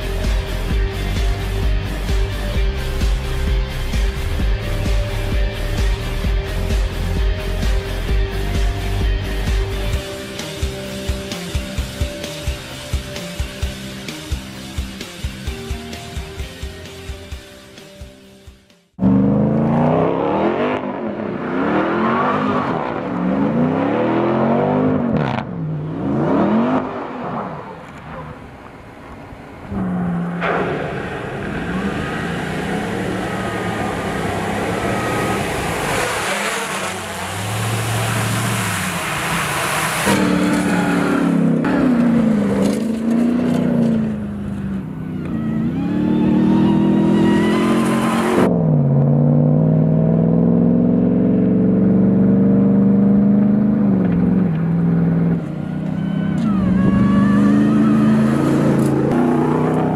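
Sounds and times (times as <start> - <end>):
engine revving hard: 19.0 - 27.2, 30.6 - 44.0, 45.6 - 48.5
rushing noise: 26.5 - 41.6.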